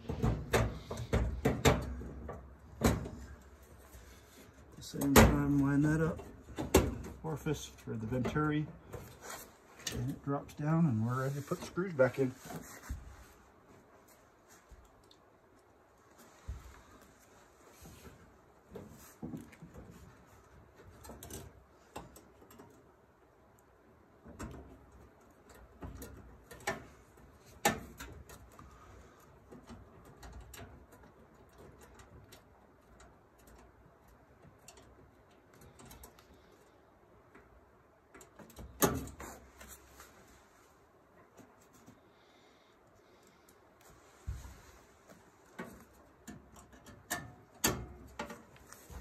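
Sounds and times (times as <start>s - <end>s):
light clicks taps and knocks: 0.0s - 3.9s, 4.6s - 10.6s, 17.8s - 39.9s, 45.0s - 49.0s.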